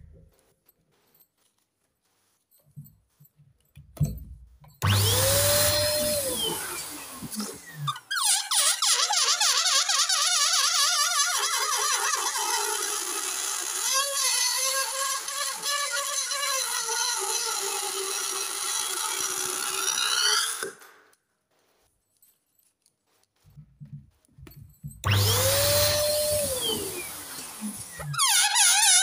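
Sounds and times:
air squealing out of balloon: 5.0s - 17.6s, 25.1s - 29.0s.

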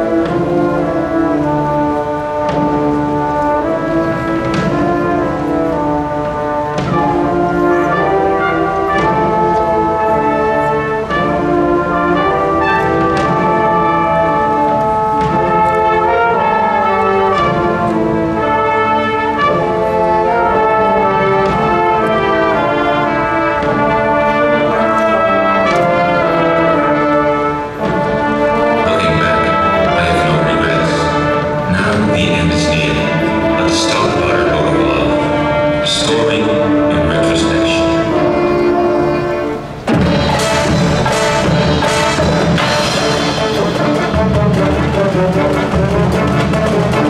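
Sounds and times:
brass section playing: 0.0s - 47.0s
percussion strokes: 39.5s - 47.0s.

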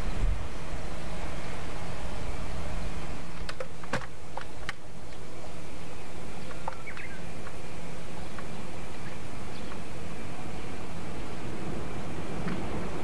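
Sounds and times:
bird chirps: 6.0s - 7.3s
steady low rumble: 7.1s - 13.0s.

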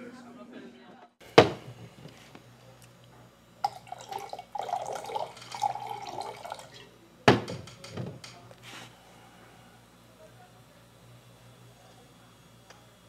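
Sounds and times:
liquid pouring into a mug: 3.6s - 6.9s.

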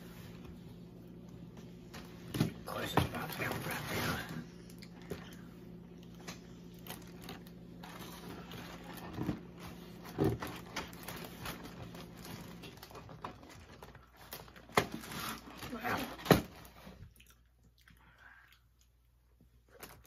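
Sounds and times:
low steady hum: 0.0s - 20.0s
person eating: 17.1s - 19.2s.

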